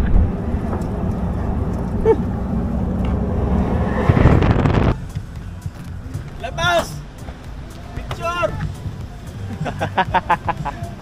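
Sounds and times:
engine running: 0.0s - 6.4s
rush of noise: 0.0s - 6.9s.

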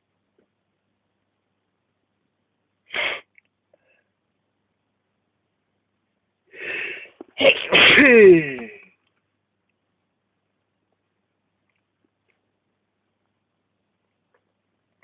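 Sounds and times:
person sneezing: 2.9s - 3.3s, 6.6s - 8.8s
noisy in-breath: 6.5s - 7.2s
sharp breath: 6.5s - 7.8s.

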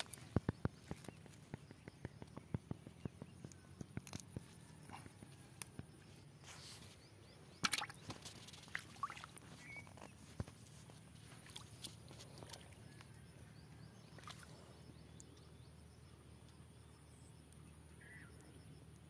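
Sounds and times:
small taps and wet rustles: 0.0s - 6.8s, 7.6s - 13.1s
fish splashing into bucket: 7.6s - 9.4s.

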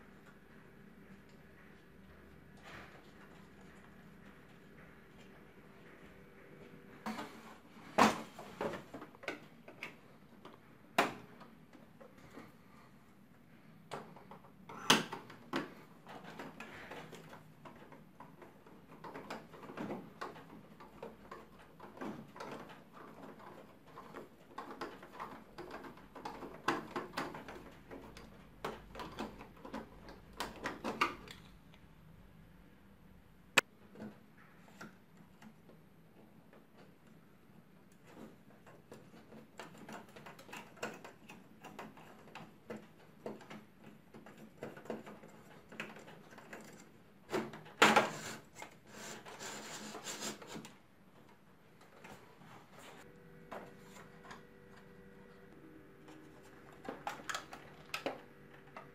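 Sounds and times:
plastic copier parts rattling: 13.9s - 31.4s, 33.8s - 52.8s, 56.0s - 58.9s.

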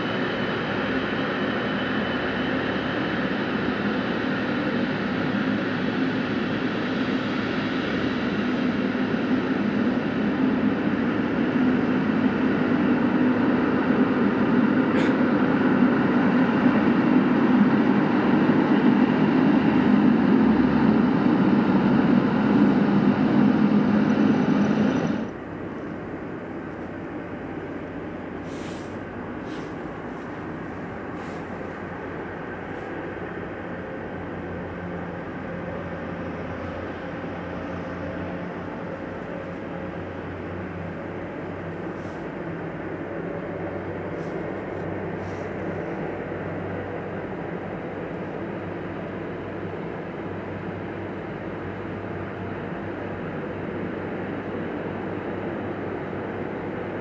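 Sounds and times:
jet engines taxiing: 0.0s - 57.0s.

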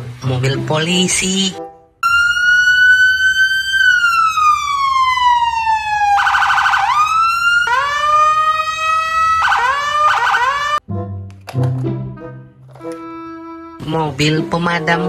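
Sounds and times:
police siren wailing: 2.0s - 10.8s
siren chirps: 2.0s - 10.8s.

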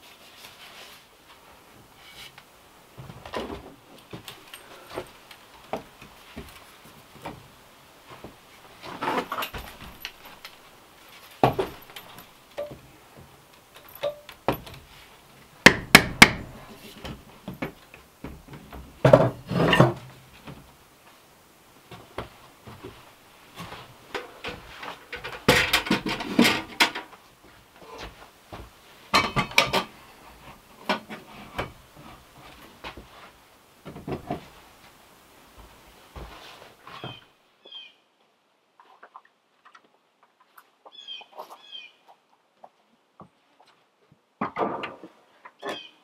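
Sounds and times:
handling knocks: 11.4s - 15.0s
wooden frames knocking on wall: 15.6s - 16.6s
metal lantern clattering on shelf: 25.1s - 27.1s, 29.2s - 29.9s.

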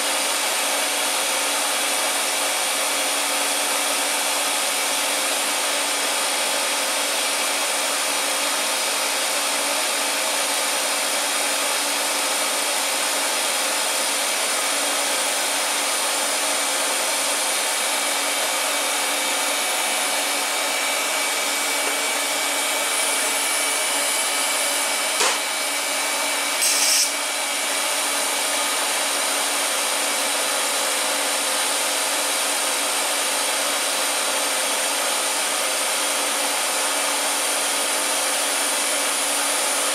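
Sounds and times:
sharp click: 26.6s - 27.1s
brief high hiss: 26.6s - 27.2s.

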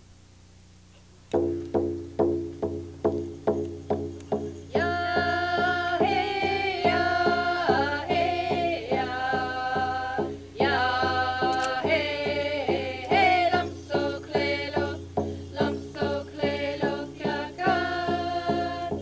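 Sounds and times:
frame drum struck with beater: 1.3s - 19.0s
women singing in unison: 4.7s - 19.0s.

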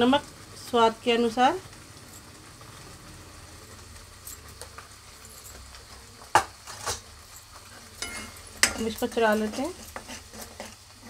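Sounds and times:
sauce bubbling in a pan: 0.0s - 11.0s.

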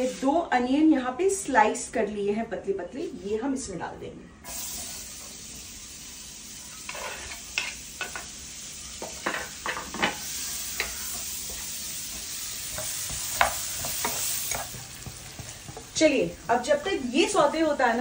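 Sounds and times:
onions sizzling in a frying pan: 4.4s - 18.0s
spatula scraping and tapping a pan: 6.9s - 8.3s, 9.0s - 16.2s.

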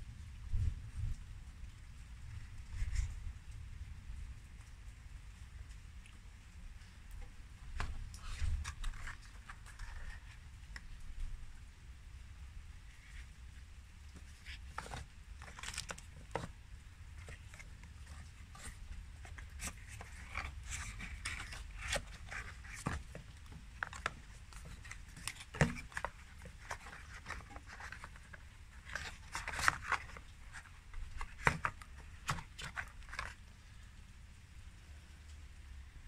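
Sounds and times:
faint low rumble: 0.0s - 25.4s
cardboard and paper rustling: 7.6s - 11.4s, 14.0s - 33.6s.

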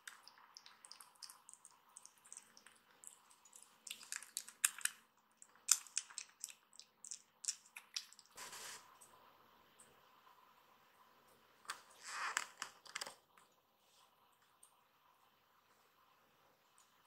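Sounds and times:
kitten eating wet smacking: 0.0s - 8.4s.

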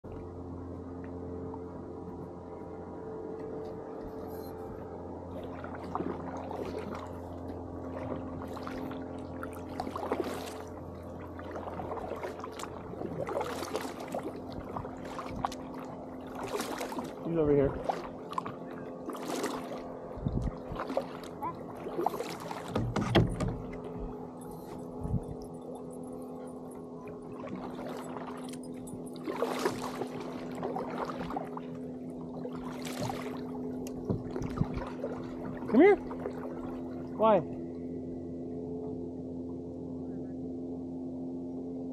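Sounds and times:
steady low hum: 0.0s - 41.9s
paddle splashing in water: 3.9s - 37.2s.

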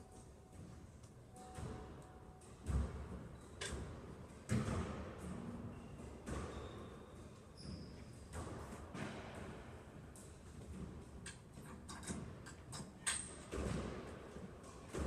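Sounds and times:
shoes squeaking on court floor: 2.7s - 3.8s, 5.6s - 8.8s.

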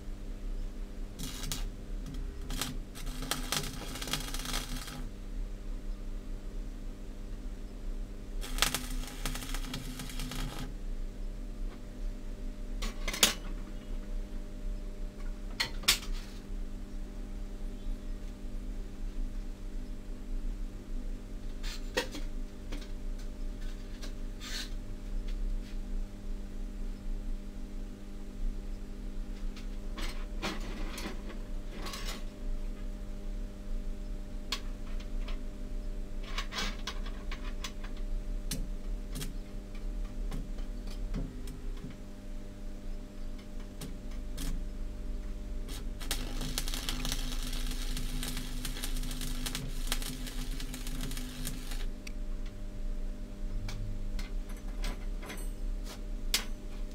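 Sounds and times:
low electrical hum: 0.0s - 56.9s
welding arc crackling: 1.2s - 5.1s, 8.4s - 10.8s, 45.7s - 52.1s.

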